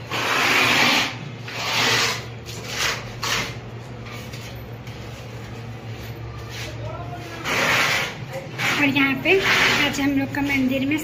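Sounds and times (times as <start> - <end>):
putty knife scraping wall: 0.0 - 3.6, 7.2 - 10.1.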